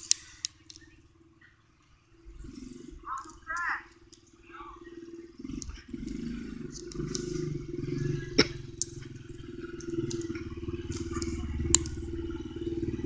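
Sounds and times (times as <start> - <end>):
dirt bike engine running: 0.0 - 13.0
sharp clicks: 3.1 - 4.3, 5.5 - 7.4, 8.4 - 12.2.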